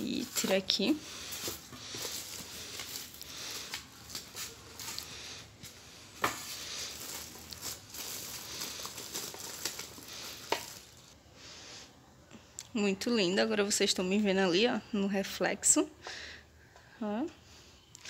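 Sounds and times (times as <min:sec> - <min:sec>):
plastic wrap crinkling: 0:00.0 - 0:11.2.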